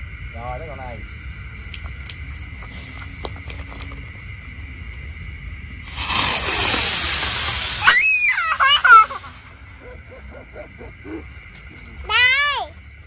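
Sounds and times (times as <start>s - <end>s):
firework hissing: 1.7s - 9.9s
child squealing and laughing: 7.6s - 10.9s.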